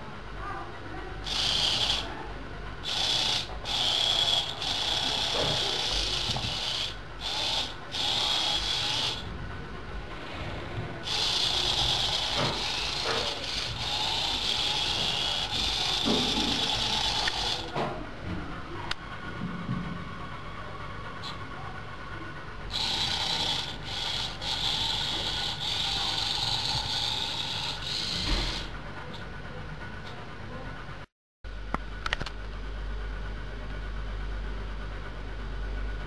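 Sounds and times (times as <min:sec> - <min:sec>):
small electric motors whirring: 0:01.2 - 0:02.2, 0:02.8 - 0:09.3, 0:11.0 - 0:17.9, 0:22.7 - 0:28.8.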